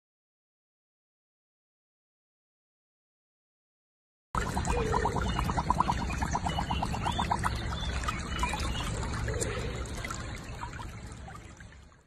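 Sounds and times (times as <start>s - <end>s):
water trickling and sloshing: 4.4s - 12.0s.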